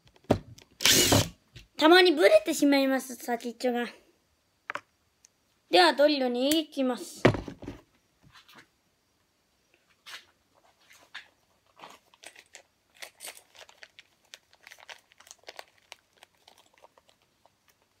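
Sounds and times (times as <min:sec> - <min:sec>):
plastic packaging crinkling: 0:11.7 - 0:18.0.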